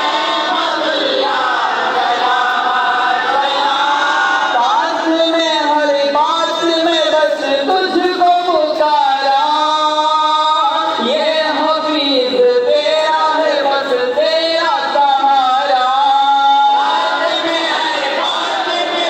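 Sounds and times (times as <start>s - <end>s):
voices singing long held notes: 0.0s - 5.0s, 15.7s - 19.0s.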